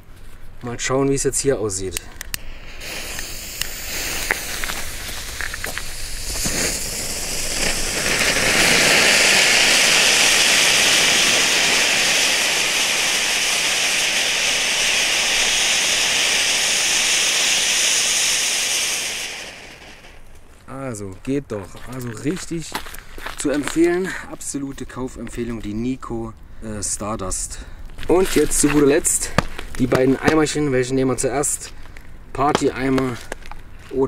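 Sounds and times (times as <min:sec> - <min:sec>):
ground fountain fireworks hissing: 0:01.2 - 0:20.6, 0:26.4 - 0:34.0
small fuse pops: 0:01.9 - 0:23.9, 0:28.0 - 0:30.6, 0:31.6 - 0:34.0.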